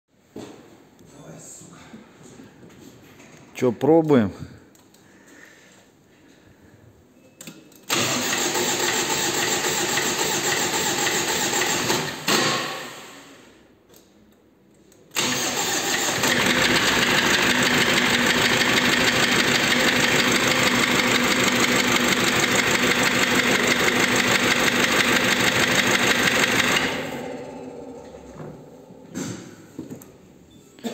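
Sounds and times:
diesel engine starting and clattering: 7.9s - 13.1s, 15.1s - 29.5s.

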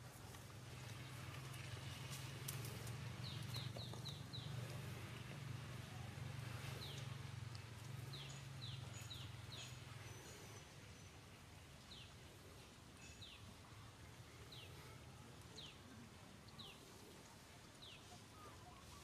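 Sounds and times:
light crackles: 0.0s - 5.4s
bird chirping: 3.2s - 4.8s, 8.0s - 11.2s.

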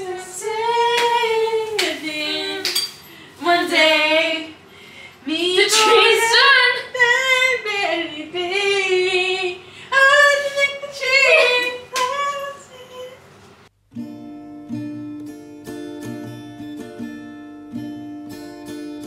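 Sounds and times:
women singing long sliding notes: 0.0s - 2.8s, 3.4s - 4.6s, 5.2s - 13.2s.

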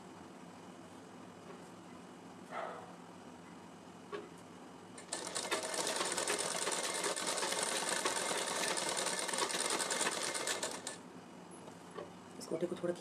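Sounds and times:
sewing machine running: 5.0s - 11.0s.

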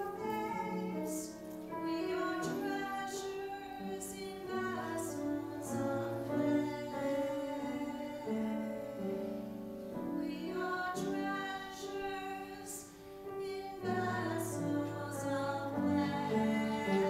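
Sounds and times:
woman singing a hymn: 0.0s - 17.0s.

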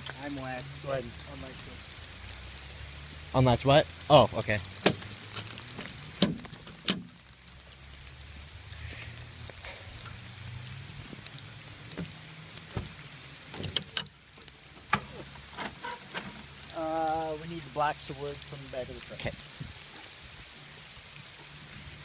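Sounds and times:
heavy rain falling: 0.0s - 22.0s
sharp clicks and knocks: 4.8s - 7.1s, 13.5s - 16.4s.

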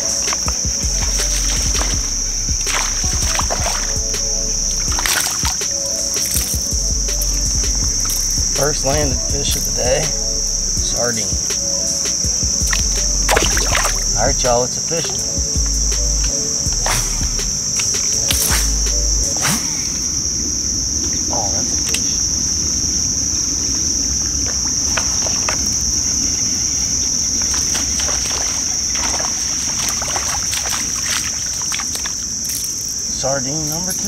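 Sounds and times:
insect chorus drone: 0.0s - 34.0s
low rumble: 0.7s - 5.3s, 6.6s - 11.4s, 12.4s - 14.6s, 15.4s - 17.6s, 18.5s - 19.4s.

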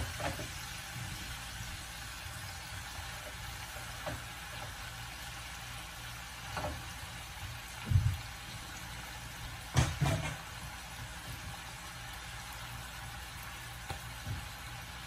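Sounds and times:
low steady sizzle: 0.0s - 15.0s.

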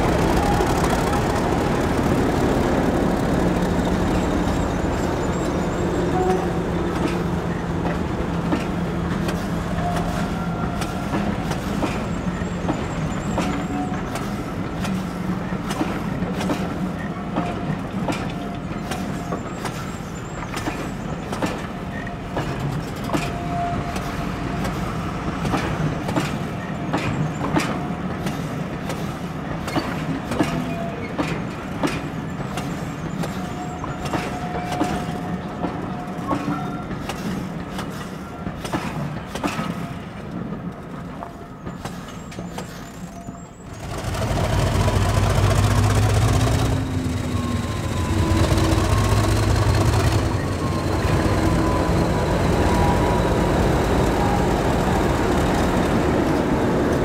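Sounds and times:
diesel locomotive engine: 0.0s - 57.0s
train wheels clicking over rail joints: 0.0s - 57.0s
wheel squeals: 32.3s - 38.4s, 41.6s - 57.0s.

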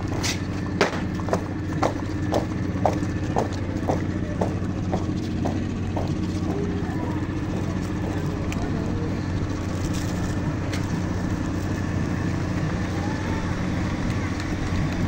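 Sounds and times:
marching boots on pavement: 0.0s - 11.8s
vehicle engine idling: 0.0s - 15.0s.

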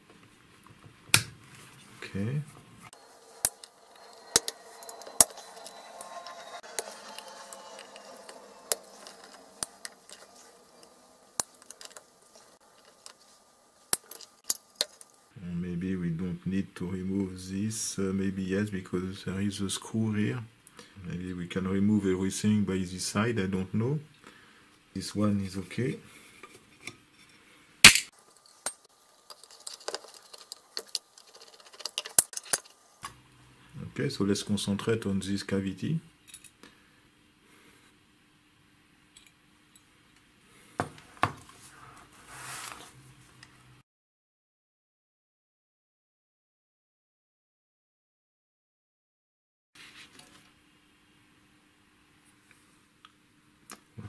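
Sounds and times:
metal parts clinking and rattling: 27.9s - 32.7s
faint rubbing: 41.5s - 43.1s.

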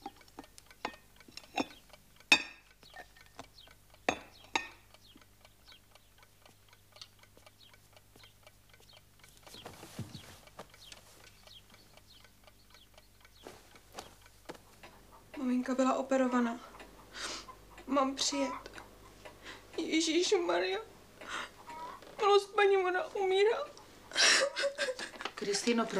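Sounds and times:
mechanical clock ticking: 0.0s - 9.7s, 10.4s - 25.9s
cup clinking on saucer: 2.3s - 2.6s, 4.1s - 4.8s
soft rustle: 8.8s - 12.0s, 13.2s - 15.2s
soft knocks: 9.5s - 10.8s.

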